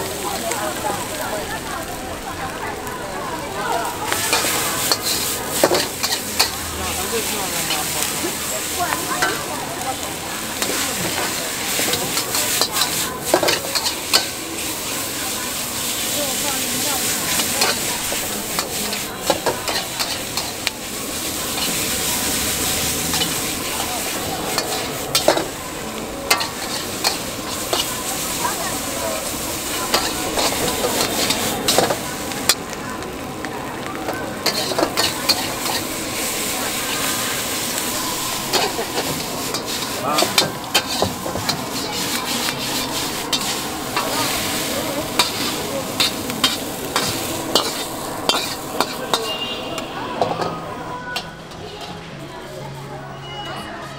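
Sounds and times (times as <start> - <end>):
noodles sizzling in a wok: 0.0 - 52.1
spatula stirring and scraping: 4.2 - 6.5, 10.6 - 14.4, 17.0 - 20.7, 21.3 - 25.5, 26.3 - 28.8, 29.6 - 32.6, 34.4 - 36.0, 38.2 - 49.5
spatula clanking against wok: 4.3 - 6.6, 10.6 - 14.4, 17.4 - 20.7, 24.5 - 25.6, 26.3 - 28.0, 29.9 - 32.6, 34.4 - 35.9, 38.5 - 44.2, 45.1 - 50.6.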